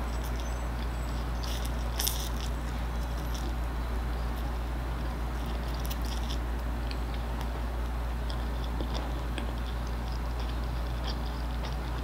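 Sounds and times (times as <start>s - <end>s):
steady low hum: 0.0s - 12.0s
person chewing noodles: 0.1s - 3.6s, 8.2s - 12.0s.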